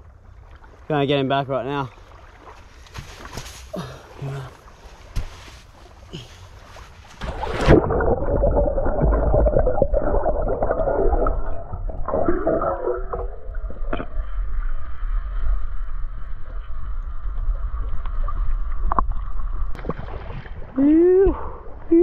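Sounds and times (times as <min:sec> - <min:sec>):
camera splashing into water: 0:07.2 - 0:08.4
underwater rumble and bubbling: 0:07.2 - 0:22.0.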